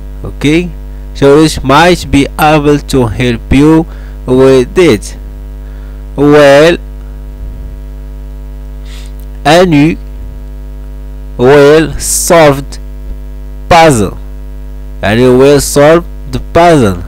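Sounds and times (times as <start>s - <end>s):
electrical mains hum: 0.0s - 17.0s
man speaking: 0.2s - 5.2s, 6.2s - 6.9s, 8.9s - 10.1s, 11.4s - 12.8s, 13.7s - 14.2s, 15.0s - 17.0s.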